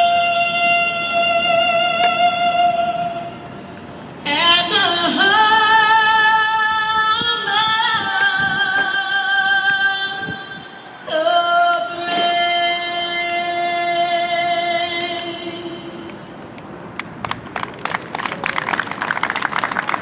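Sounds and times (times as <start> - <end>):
person singing slowly: 0.0 - 3.5, 4.2 - 16.2.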